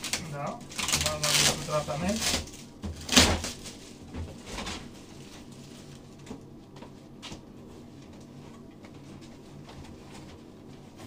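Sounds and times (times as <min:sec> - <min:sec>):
cardboard packaging rustling: 0:00.0 - 0:06.2.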